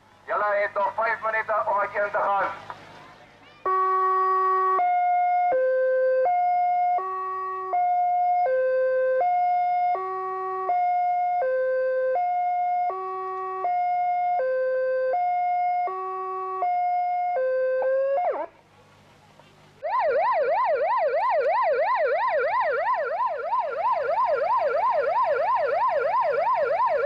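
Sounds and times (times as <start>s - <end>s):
electronic siren stepping tones: 3.7s - 18.5s, 19.8s - 27.0s.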